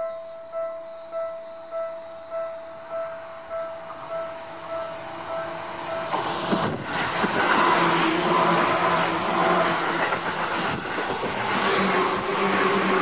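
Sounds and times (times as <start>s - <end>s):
train hum: 0.0s - 13.0s
train wheels on rails: 3.9s - 13.0s.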